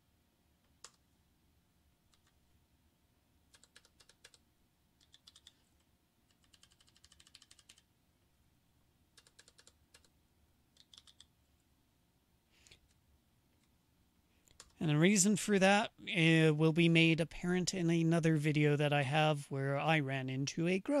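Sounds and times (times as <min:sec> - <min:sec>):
typing on a computer keyboard: 0:00.7 - 0:01.0, 0:02.1 - 0:02.4, 0:03.5 - 0:04.4, 0:05.0 - 0:07.9, 0:09.1 - 0:11.3, 0:14.5 - 0:14.8.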